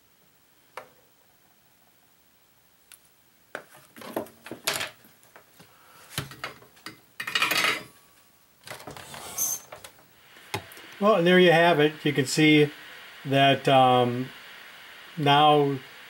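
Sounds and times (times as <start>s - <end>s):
tools clattering on workbench: 7.2s - 7.9s.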